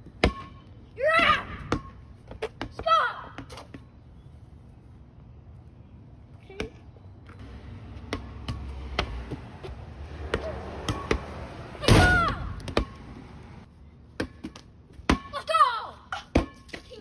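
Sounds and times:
child yelling: 0:01.0 - 0:01.6, 0:02.8 - 0:03.4, 0:11.8 - 0:12.6, 0:15.3 - 0:16.2
rubber ball bouncing on concrete: 0:08.0 - 0:11.3, 0:12.4 - 0:13.1.

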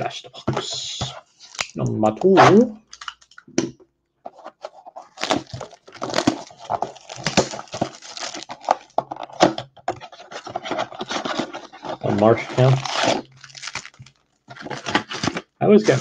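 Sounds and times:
plastic shrink wrap crinkling: 0:02.8 - 0:03.5, 0:04.3 - 0:16.0.

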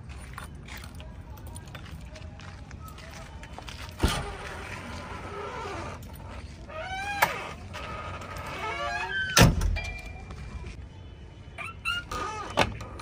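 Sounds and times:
door squeaking: 0:04.0 - 0:09.9, 0:11.6 - 0:13.0
heavy door thud: 0:09.3 - 0:09.8.

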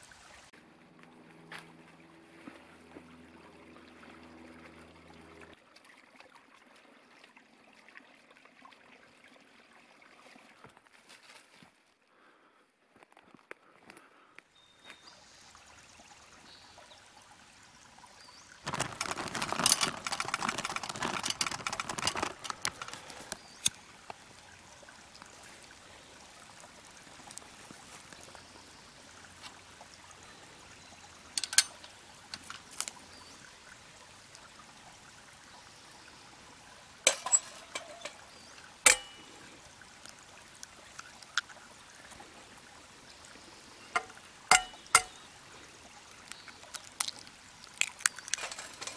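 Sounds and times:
pellets rattling into stove: 0:18.6 - 0:23.4, 0:37.1 - 0:38.2, 0:47.8 - 0:48.9
sharp clicks and knocks: 0:18.7 - 0:23.8, 0:44.0 - 0:45.2
eggs cracked on frying pan: 0:38.9 - 0:39.2, 0:44.0 - 0:45.2, 0:46.2 - 0:48.9.

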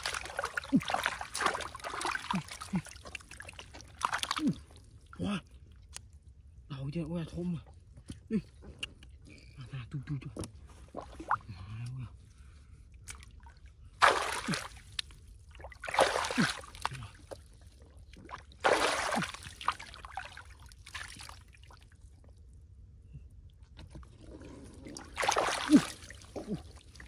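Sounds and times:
water splashing and sloshing: 0:00.0 - 0:06.4, 0:10.5 - 0:11.5, 0:12.8 - 0:22.8, 0:23.6 - 0:27.0.

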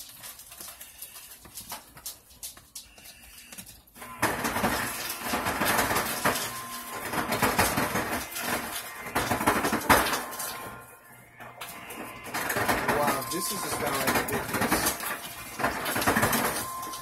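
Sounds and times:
knife scraping frozen ice cream: 0:00.0 - 0:03.8.

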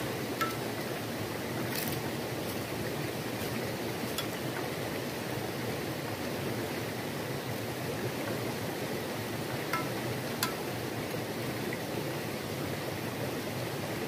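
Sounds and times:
river water rushing: 0:00.0 - 0:14.0
utensil clicking against pan: 0:00.4 - 0:00.6, 0:09.7 - 0:10.6.

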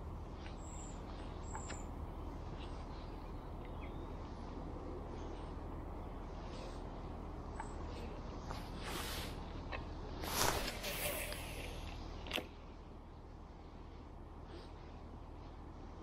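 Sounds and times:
low background rumble: 0:00.0 - 0:16.0.

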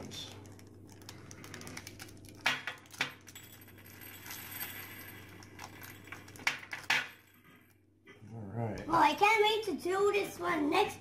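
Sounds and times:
candy beads clinking into ceramic dish: 0:01.4 - 0:07.5.

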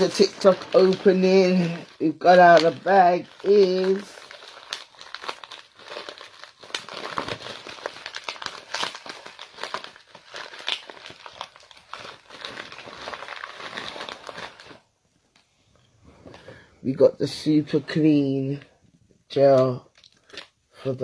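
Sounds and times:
plastic packaging crinkling: 0:00.0 - 0:15.5, 0:19.3 - 0:21.0.

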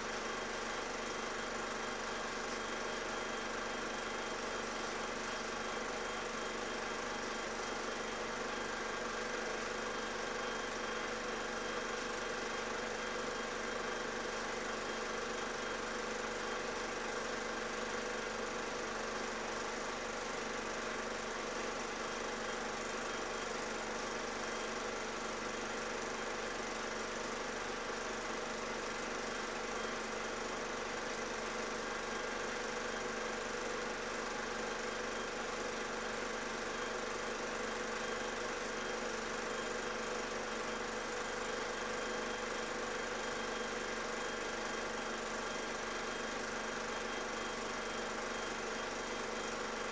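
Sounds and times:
steady mechanical hum: 0:00.0 - 0:49.9.

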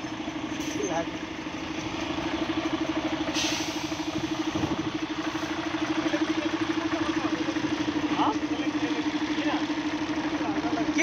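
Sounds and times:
diesel truck engine idling: 0:00.0 - 0:11.0
brief hiss: 0:03.3 - 0:04.0.

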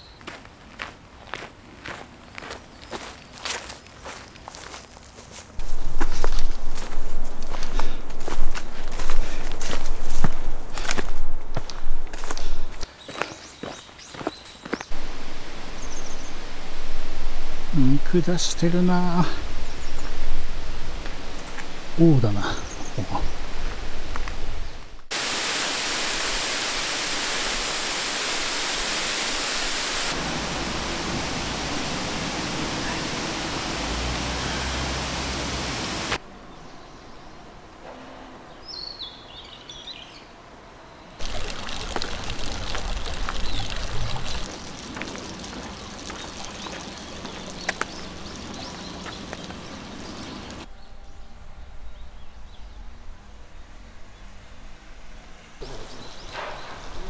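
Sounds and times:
rushing water: 0:14.9 - 0:36.2, 0:41.2 - 0:50.7.

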